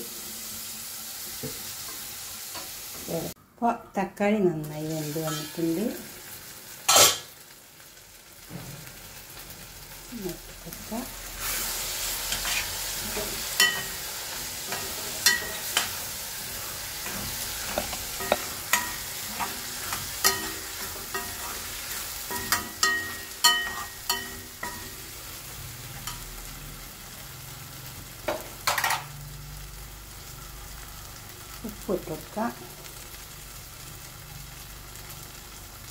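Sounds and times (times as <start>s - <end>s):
food sizzling in oil: 0.0s - 3.4s, 4.6s - 35.9s
spoon scraping pan: 5.2s - 5.6s, 6.9s - 7.3s, 11.4s - 25.1s
metal spoon clinking on pan: 12.4s - 14.0s, 14.7s - 16.0s, 17.0s - 21.7s, 22.3s - 25.0s.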